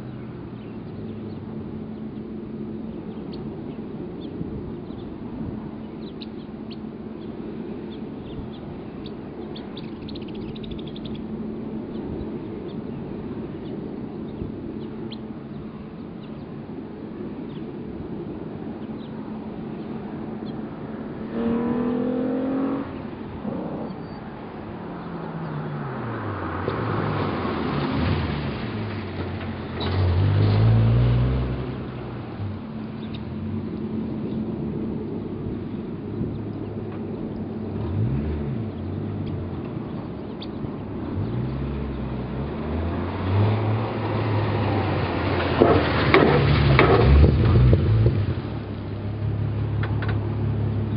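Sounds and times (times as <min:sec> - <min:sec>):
car engine accelerating through gears: 0:21.1 - 0:24.3, 0:25.0 - 0:33.8, 0:37.6 - 0:40.0, 0:41.0 - 0:50.9.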